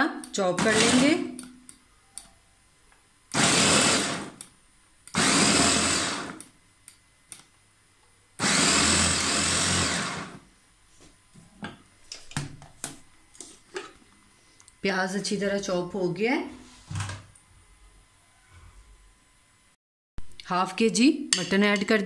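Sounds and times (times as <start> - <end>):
electric food chopper whirring: 0.5 - 1.3, 3.3 - 4.5, 5.1 - 6.5, 8.4 - 10.4.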